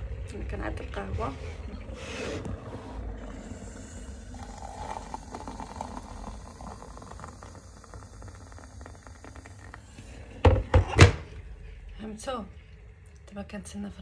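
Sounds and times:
hot water pouring into mug: 1.6s - 10.8s.

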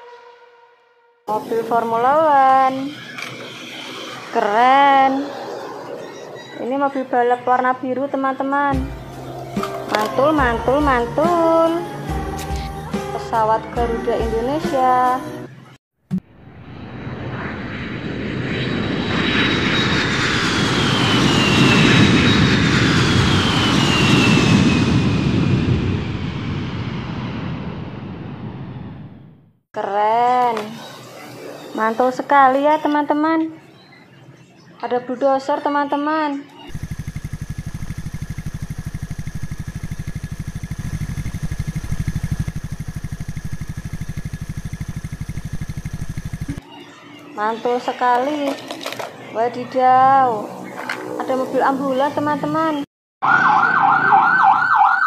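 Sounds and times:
jet engine whine sliding down: 1.3s - 7.2s, 16.3s - 29.4s, 36.7s - 46.6s
jet airliner passing low: 1.3s - 7.5s, 16.4s - 29.3s, 30.6s - 32.8s, 50.2s - 52.6s
faint high whine: 36.7s - 46.6s
loader engine running: 36.7s - 46.6s.

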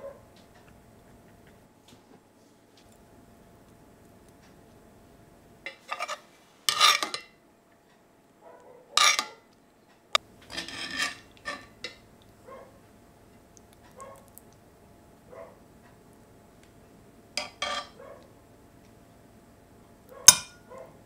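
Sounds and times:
metal utensils scraping cookware: 5.7s - 7.3s, 9.0s - 9.3s, 10.5s - 12.0s, 17.4s - 18.0s.

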